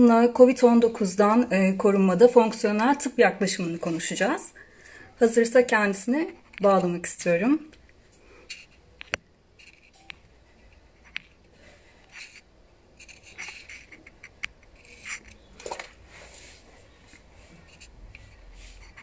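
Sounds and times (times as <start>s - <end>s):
soft rustles: 7.9s - 19.0s.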